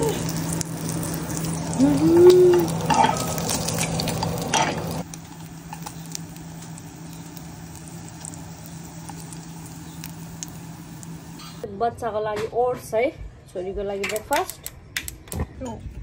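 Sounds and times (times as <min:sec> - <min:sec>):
steady hum: 0:00.0 - 0:11.8.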